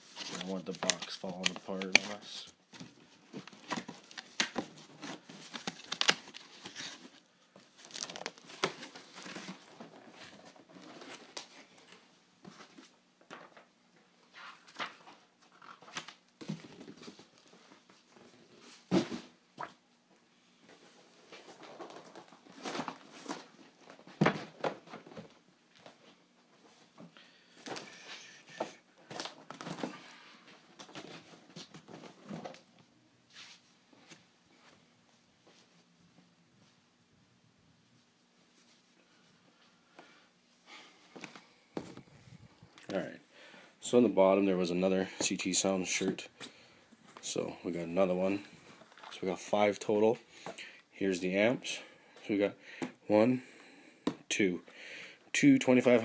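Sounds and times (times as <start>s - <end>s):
cardboard and packing rustling: 0.0s - 13.7s, 20.6s - 34.8s.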